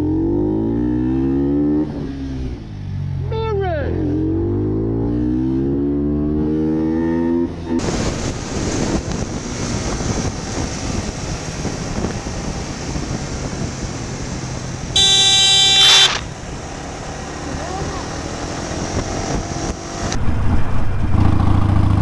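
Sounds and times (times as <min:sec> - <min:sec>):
road noise: 0:00.0 - 0:22.0
motorcycle engine accelerating: 0:03.9 - 0:22.0
wind rush: 0:07.8 - 0:14.9, 0:17.8 - 0:21.2.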